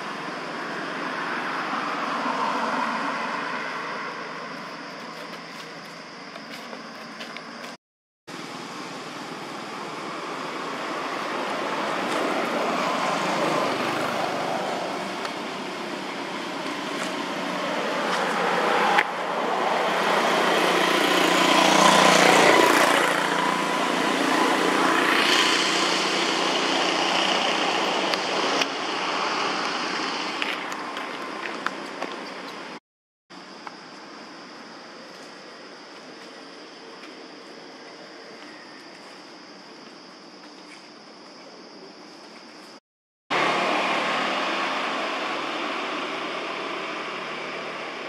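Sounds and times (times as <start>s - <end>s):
vehicle passing: 9.8s - 31.4s, 43.3s - 48.0s.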